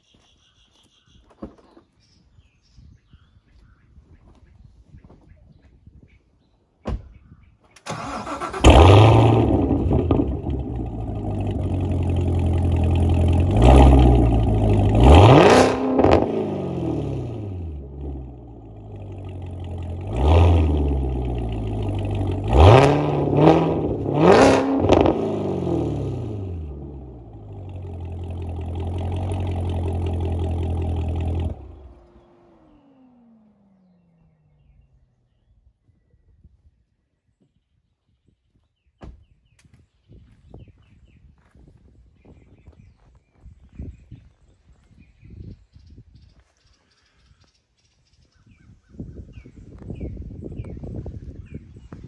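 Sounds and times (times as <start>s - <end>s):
sports car engine idling: 8.6s - 24.4s, 25.1s - 34.9s
sports car engine revving: 8.6s - 34.9s.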